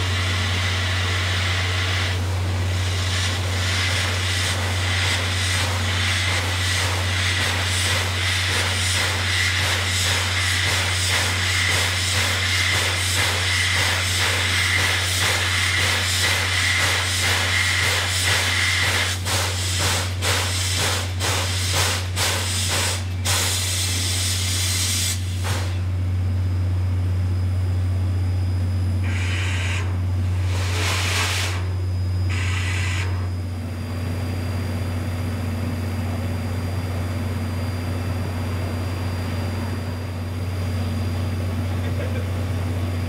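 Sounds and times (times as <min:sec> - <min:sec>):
hiss of steam: 0:00.0 - 0:25.9, 0:29.0 - 0:31.7, 0:32.3 - 0:33.3
short steam blasts: 0:00.0 - 0:25.9, 0:29.0 - 0:33.4
steam locomotive chuffing: 0:00.0 - 0:26.0, 0:29.0 - 0:33.5
steady low hum: 0:00.0 - 0:43.0.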